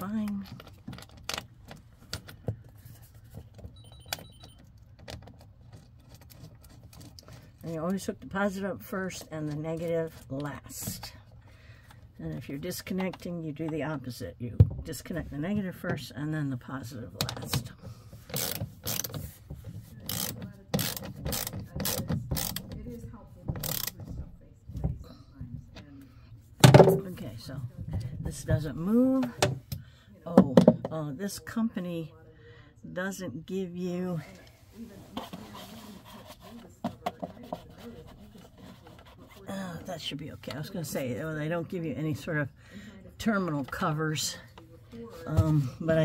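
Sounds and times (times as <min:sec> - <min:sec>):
hand ratchet clicking: 0:18.3 - 0:19.2, 0:20.1 - 0:22.6, 0:23.6 - 0:23.9.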